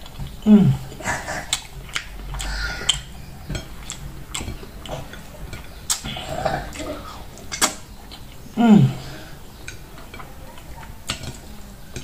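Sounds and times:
wet mouth smacks and chewing: 1.5 - 3.1, 5.9 - 6.1.

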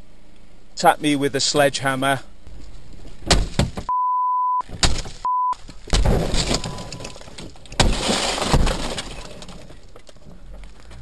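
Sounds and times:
steady beep: 3.9 - 5.6
breaking glass: 5.9 - 9.8
sledgehammer smashing windscreen: 5.9 - 9.8.

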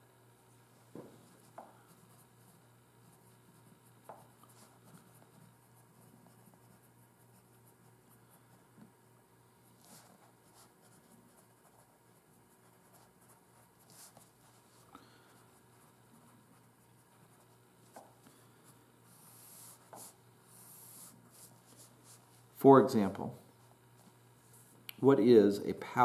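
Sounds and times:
pencil scratching on paper: 1.2 - 8.5, 9.8 - 14.8, 18.6 - 22.3.

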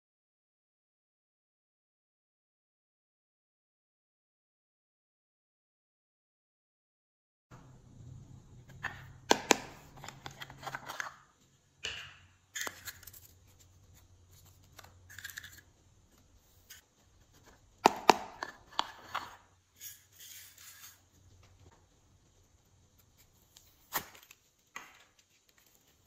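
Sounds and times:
plastic lids snapping open: 8.8 - 11.2, 17.8 - 19.3.

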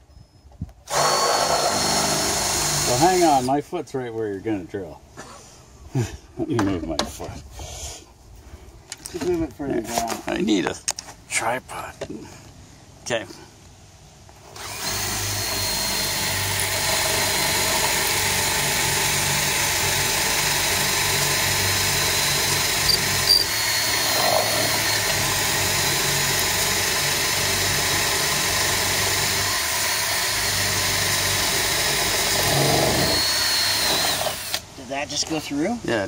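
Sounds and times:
electric drill boring into wood: 0.9 - 3.5, 14.5 - 34.6.

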